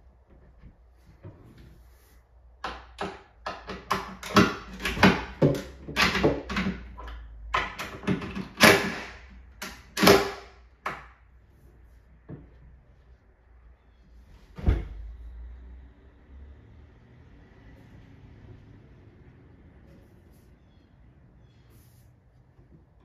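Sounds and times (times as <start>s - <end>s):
cabinet hinge clicks and knocks: 2.6s - 11.2s.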